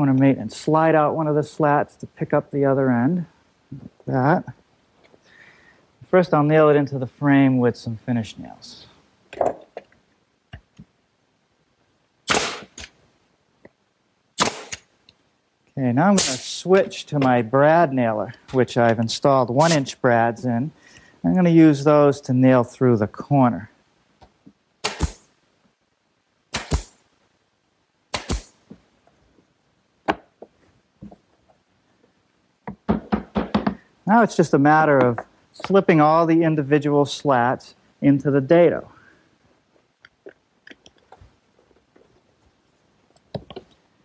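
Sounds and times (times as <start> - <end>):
nail gun shots: 12.2 - 12.9, 14.4 - 14.9, 16.2 - 16.5, 24.8 - 25.3, 26.5 - 27.0, 28.1 - 28.6.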